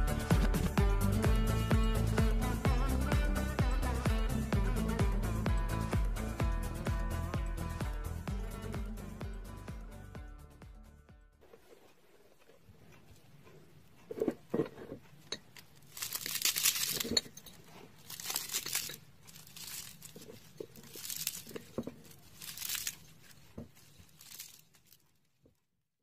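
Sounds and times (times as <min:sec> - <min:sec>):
pastry crust crackling: 0:11.5 - 0:25.7.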